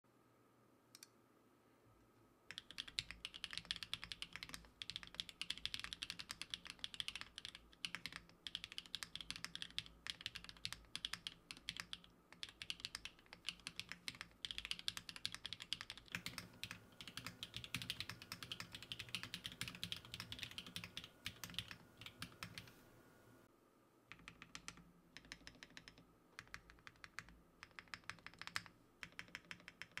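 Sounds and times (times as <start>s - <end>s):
mechanical keyboard typing clicks: 2.5s - 22.7s, 24.1s - 30.0s.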